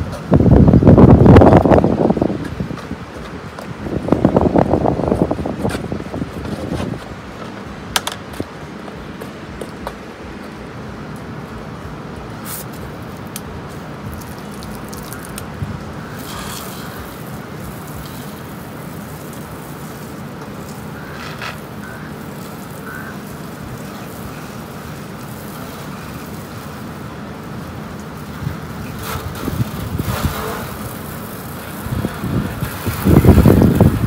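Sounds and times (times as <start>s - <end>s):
pressure washer humming: 0.0s - 34.0s
spray hiss: 12.3s - 15.4s, 16.0s - 34.0s.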